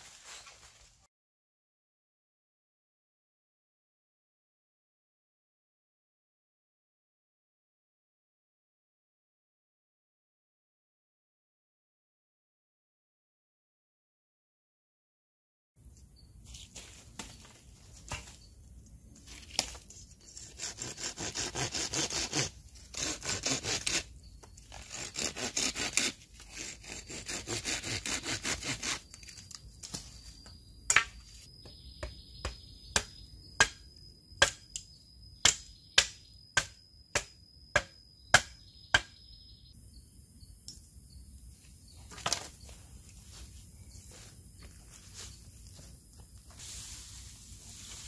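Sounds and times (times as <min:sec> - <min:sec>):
machete scraping on stone: 0:20.2 - 0:29.5
machete chopping bamboo: 0:30.9 - 0:31.2, 0:32.0 - 0:34.8, 0:35.4 - 0:39.2.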